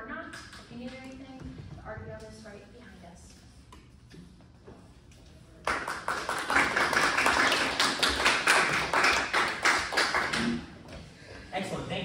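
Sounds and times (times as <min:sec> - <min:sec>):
audience applauding: 0:05.6 - 0:10.6.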